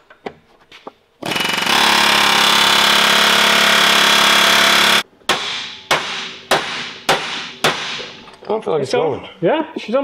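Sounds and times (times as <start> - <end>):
pneumatic air hammer rattling: 1.2 - 7.0.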